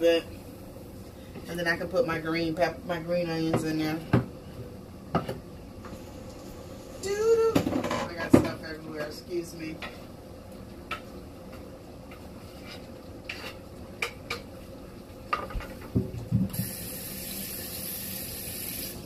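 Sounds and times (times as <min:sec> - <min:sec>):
steady high hiss: 0:16.5 - 0:19.0.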